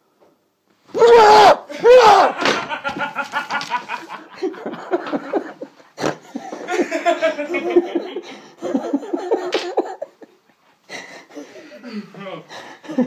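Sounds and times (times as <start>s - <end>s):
person screaming: 1.0s - 2.5s.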